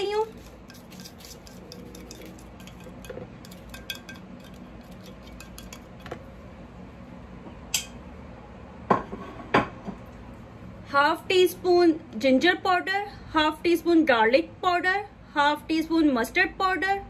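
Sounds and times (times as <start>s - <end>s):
plastic spoon scraping a plate: 0.2s - 6.2s.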